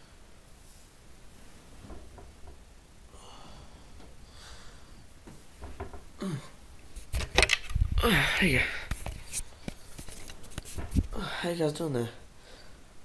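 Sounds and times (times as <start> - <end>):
person breathing and sighing: 3.1 - 5.1, 6.1 - 6.6, 8.0 - 9.1
person groaning: 6.2 - 6.6, 8.0 - 8.8
camera knocks and rustling: 7.0 - 7.8.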